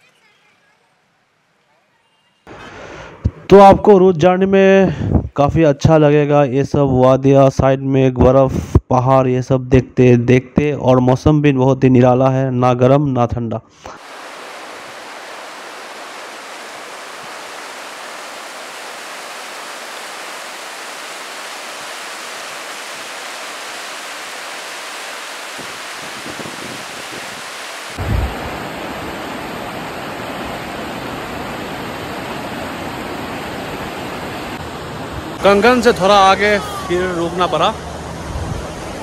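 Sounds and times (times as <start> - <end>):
river rushing over rapids: 14.0 - 39.0.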